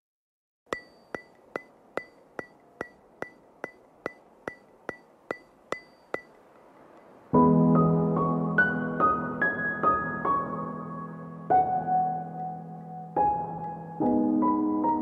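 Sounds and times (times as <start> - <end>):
ticking beat with ringing tone: 0.7 - 7.2
keyboard chords with melody: 7.4 - 15.0.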